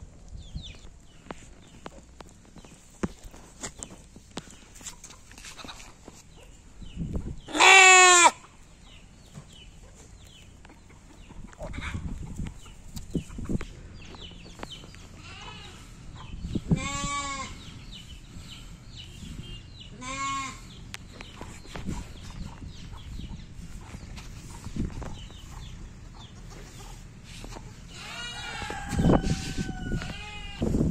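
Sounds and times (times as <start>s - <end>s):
lambs bleating: 7.5s - 8.4s, 15.2s - 15.9s, 16.6s - 17.6s, 19.9s - 20.8s, 27.9s - 28.4s, 29.9s - 30.6s.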